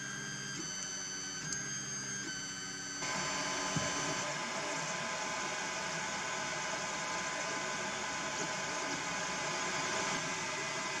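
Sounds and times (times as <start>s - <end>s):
faint motor whining tones: 0.0s - 11.0s
printer fan hiss: 2.3s - 11.0s.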